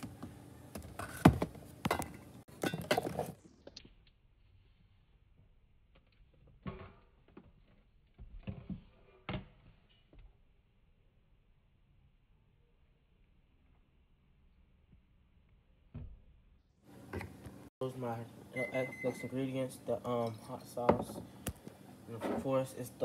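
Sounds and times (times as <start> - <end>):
bottles clattering on a shelf: 1.0 - 3.4.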